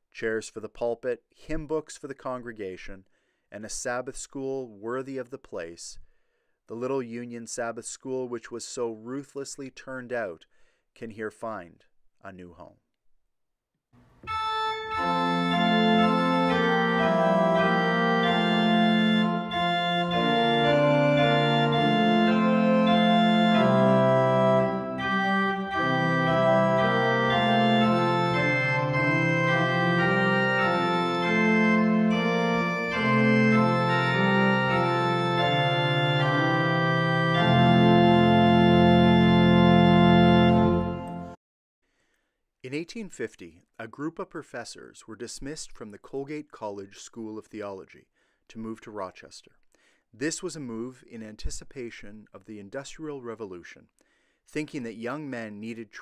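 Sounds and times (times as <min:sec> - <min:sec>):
organ playing slow chords: 0:14.2 - 0:41.4.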